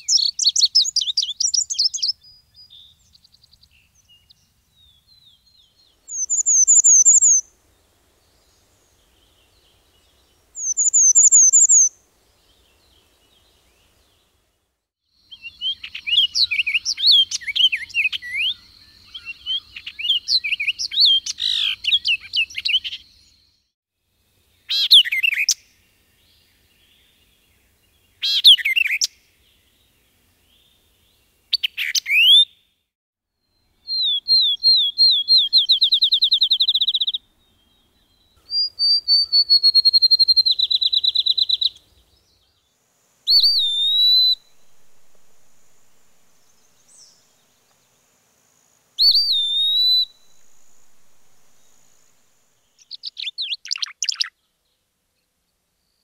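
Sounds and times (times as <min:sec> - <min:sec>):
bird warbling song: 0:00.0 - 0:14.3, 0:15.2 - 0:23.7, 0:33.5 - 0:42.7, 0:43.3 - 0:48.0, 0:49.0 - 0:54.7
bird trills and whistle: 0:06.1 - 0:07.4, 0:10.6 - 0:11.9, 0:38.5 - 0:41.8, 0:43.3 - 0:47.2, 0:49.0 - 0:54.3.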